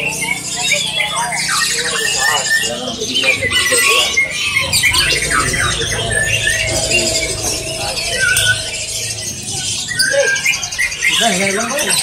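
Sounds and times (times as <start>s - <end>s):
songbirds chirping and trilling: 0.0s - 12.0s
steady low hum: 3.5s - 11.2s.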